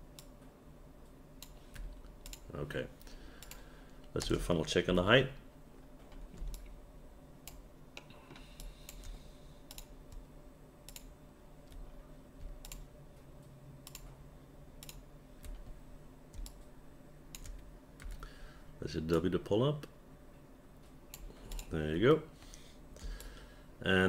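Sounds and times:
faint steady hum: 0:00.0 - 0:24.0
keyboard and mouse clicking: 0:01.4 - 0:02.5, 0:03.4 - 0:04.4, 0:06.3 - 0:06.7, 0:07.4 - 0:10.3, 0:10.9 - 0:11.1, 0:11.7 - 0:12.9, 0:13.8 - 0:14.1, 0:14.8 - 0:15.7, 0:16.3 - 0:16.6, 0:17.3 - 0:18.3.

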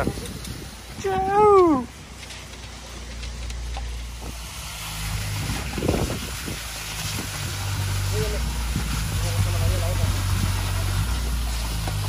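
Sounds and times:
concrete pump engine hum: 0:00.0 - 0:12.0
rough rumbling burst: 0:03.4 - 0:12.0.

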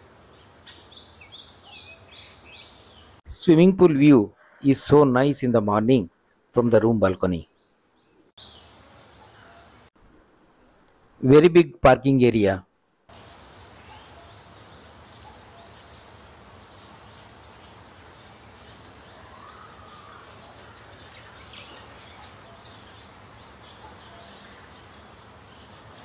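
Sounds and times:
background hiss: 0:00.0 - 0:04.1, 0:05.0 - 0:26.0
birds chirping: 0:00.3 - 0:03.2, 0:06.8 - 0:09.9, 0:13.1 - 0:26.0
bird rising and falling call: 0:17.6 - 0:26.0.

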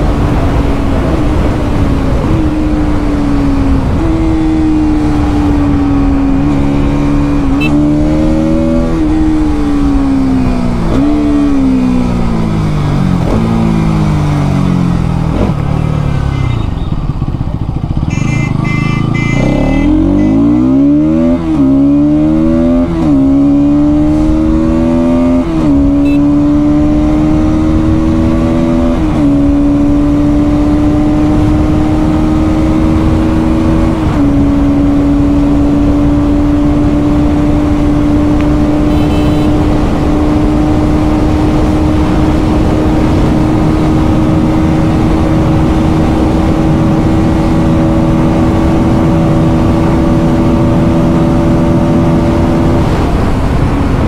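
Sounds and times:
motorcycle engine shifting gears: 0:00.0 - 0:54.0.

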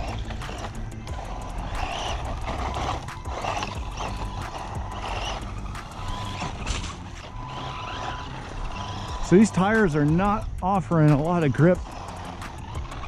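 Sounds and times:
electric motor whining: 0:00.0 - 0:13.0
toy car clicking on dirt: 0:00.0 - 0:13.0.

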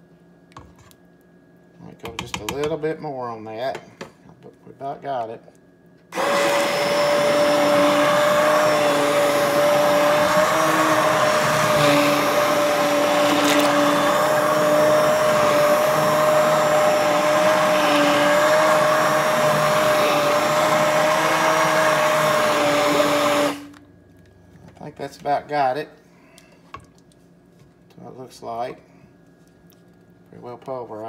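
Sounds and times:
immersion blender running: 0:06.1 - 0:23.8.

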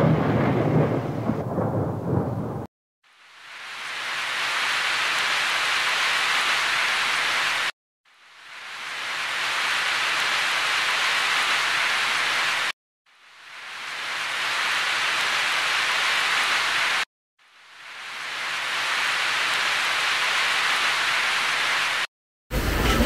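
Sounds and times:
steady hiss: 0:03.1 - 0:22.8.

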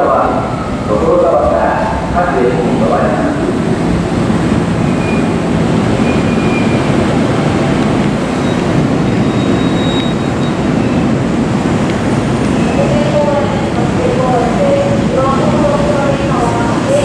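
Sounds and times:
train wheels rumbling: 0:00.0 - 0:17.0
high squeals: 0:04.8 - 0:05.4, 0:06.0 - 0:07.0, 0:08.4 - 0:11.0.

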